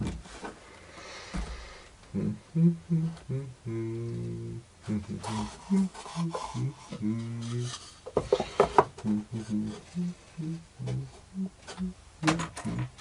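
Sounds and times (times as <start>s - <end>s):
wood scraping on wood: 5.2s - 10.0s.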